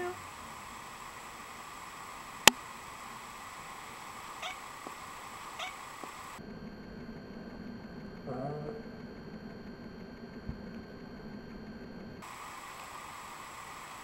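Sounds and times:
cat meowing: 0:04.4 - 0:04.7, 0:05.6 - 0:05.8.

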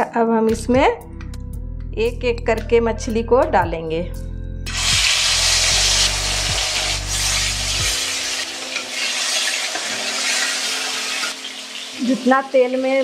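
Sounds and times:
fish sizzling in hot oil: 0:04.7 - 0:13.0.

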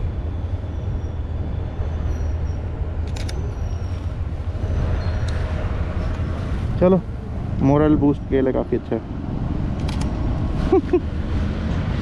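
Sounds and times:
low hum: 0:00.0 - 0:12.0
road traffic rumble: 0:00.0 - 0:12.0
sharp clicks: 0:09.8 - 0:10.2.

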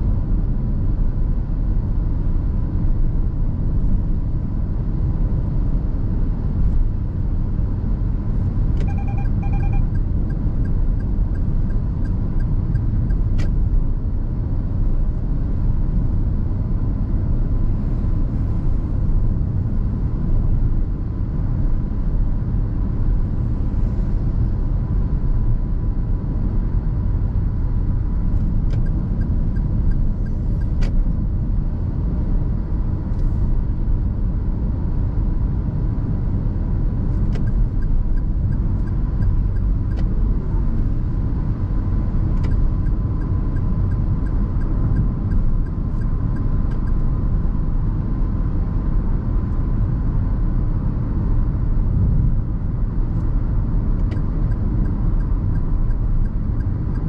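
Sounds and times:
car engine and tyres rumbling: 0:00.0 - 0:57.0
short double beep: 0:08.8 - 0:10.0.

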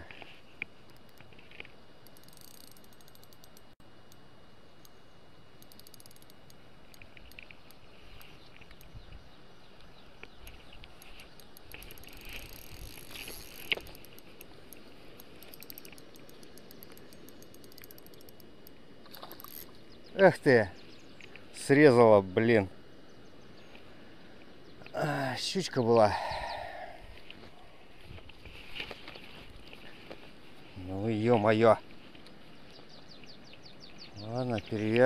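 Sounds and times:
spinning reel ticking: 0:02.0 - 0:03.7, 0:05.6 - 0:07.8, 0:11.0 - 0:14.5, 0:15.2 - 0:18.8.

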